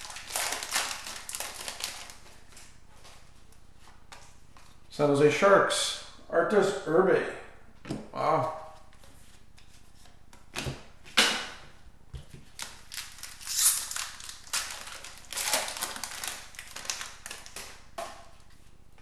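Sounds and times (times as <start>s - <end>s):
wrapper crinkling: 0.0s - 2.8s, 12.5s - 17.9s.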